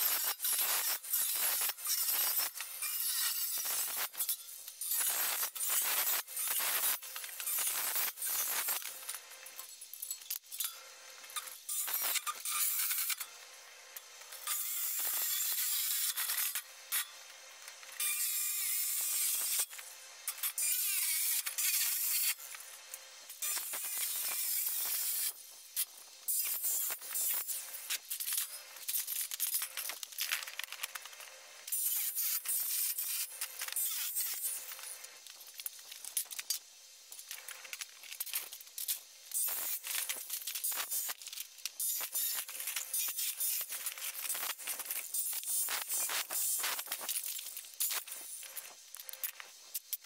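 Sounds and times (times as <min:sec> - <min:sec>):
circular saw cutting metal: 0:14.3 - 0:17.1, 0:17.9 - 0:25.4.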